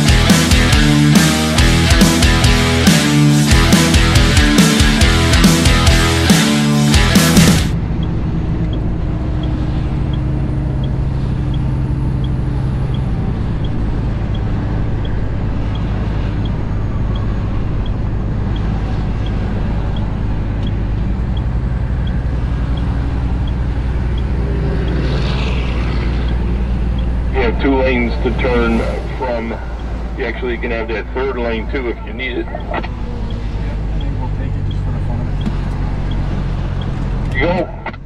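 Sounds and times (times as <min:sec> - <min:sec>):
diesel truck engine droning: 0:00.0 - 0:38.0
road noise: 0:00.0 - 0:38.0
faint regular ticking: 0:08.0 - 0:28.2, 0:29.6 - 0:37.4.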